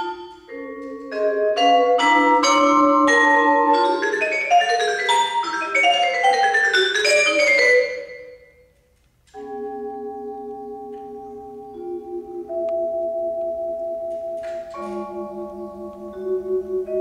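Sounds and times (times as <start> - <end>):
vibraphone notes: 0.0 - 17.0.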